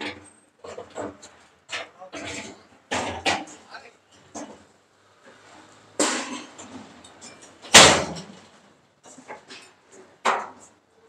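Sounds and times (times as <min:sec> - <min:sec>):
sharp metal bangs: 0:07.7 - 0:08.3.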